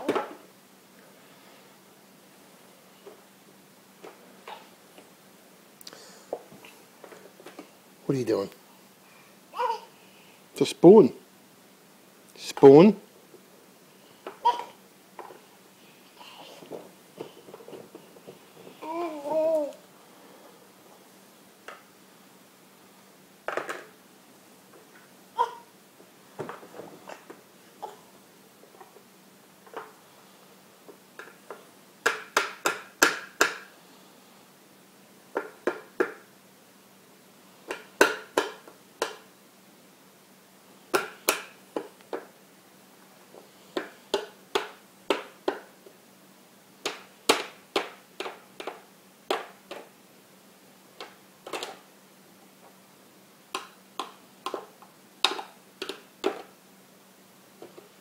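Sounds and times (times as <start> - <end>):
plastic spoon tapping on tray: 55.2 - 56.4.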